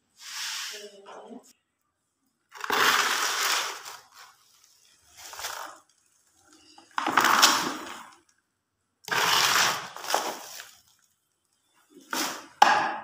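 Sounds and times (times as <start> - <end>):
dustpan scraping concrete floor: 0.2 - 1.0, 2.6 - 4.5, 9.1 - 10.7, 12.0 - 12.6.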